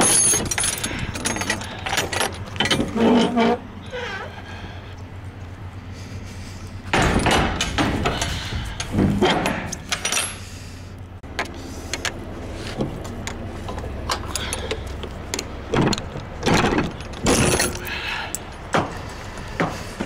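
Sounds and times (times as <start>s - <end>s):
metal door clanking and rattling: 0.0s - 4.2s, 6.9s - 10.4s, 15.7s - 19.0s
low engine hum: 0.2s - 20.0s.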